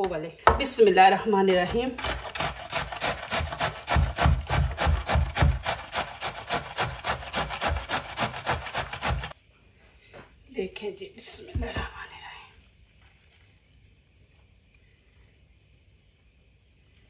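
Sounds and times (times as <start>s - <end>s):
gourd rasping on metal grater: 1.8s - 9.4s.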